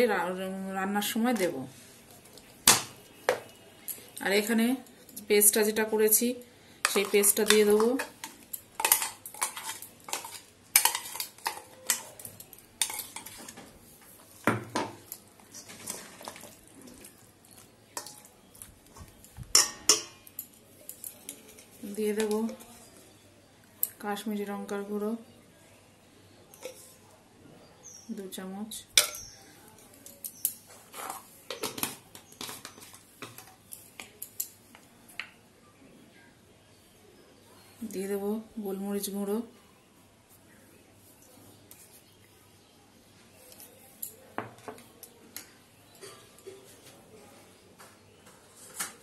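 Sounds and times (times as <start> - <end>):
spoon and containers clinking: 6.8 - 13.8, 14.5 - 23.0, 43.4 - 46.9
spoon scraping steel bowl: 6.9 - 13.6.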